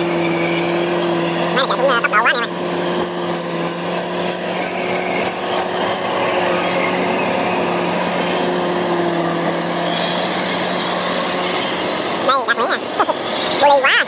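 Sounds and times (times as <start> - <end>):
combine harvester engine droning: 0.0 - 14.0
high whine: 1.4 - 14.0
fast high ticking: 3.0 - 6.1.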